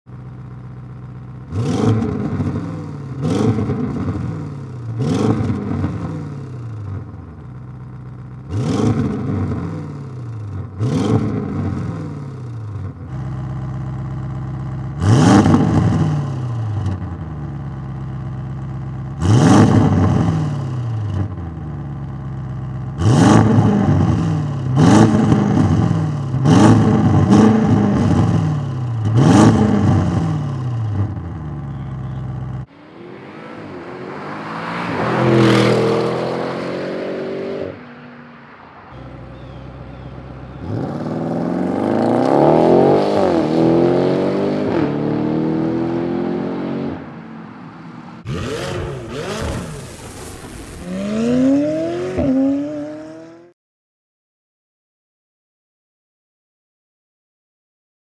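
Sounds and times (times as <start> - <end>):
car engine idling and revving: 0.0 - 53.5
car driving past: 32.7 - 42.4.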